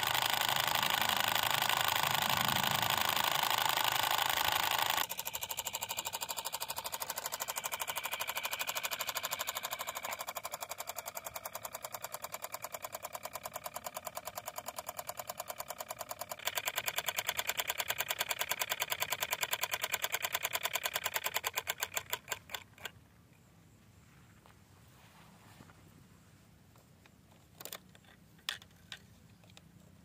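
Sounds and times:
model engine ticking chug: 0.0s - 22.9s.

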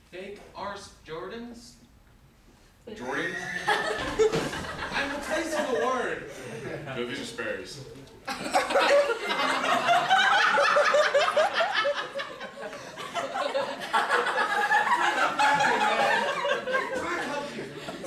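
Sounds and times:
audience laughing: 3.4s - 7.0s, 8.3s - 18.0s.

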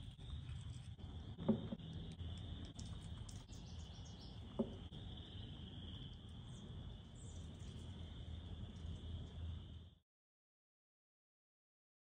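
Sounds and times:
crickets trilling: 0.0s - 10.0s
faint bird chirps: 3.3s - 4.8s.

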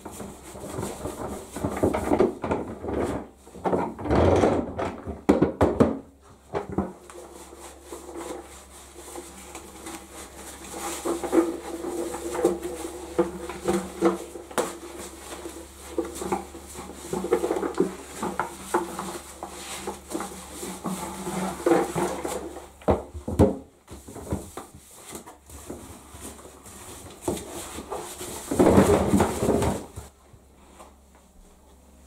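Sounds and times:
plastic body clattering in bath: 0.0s - 8.5s, 9.1s - 30.1s
sponge rubbing wet plastic: 7.0s - 22.8s.

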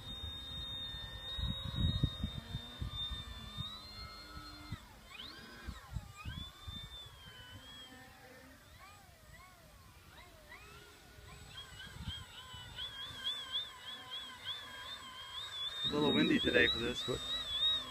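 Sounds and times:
model airplane motor whining: 0.0s - 17.9s
wind buffeting microphone: 0.5s - 5.0s, 11.5s - 12.9s.

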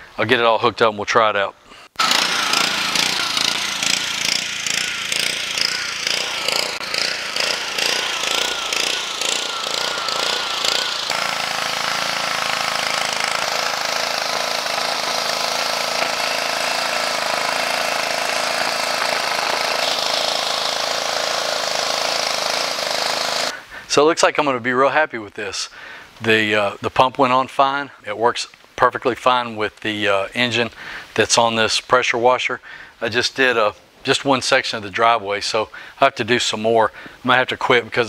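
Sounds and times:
pressure washer engine pulsing: 2.0s - 23.5s.

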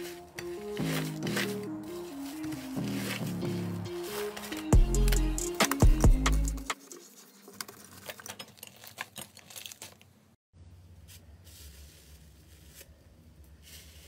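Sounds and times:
slime stretching and tearing: 8.0s - 10.0s.

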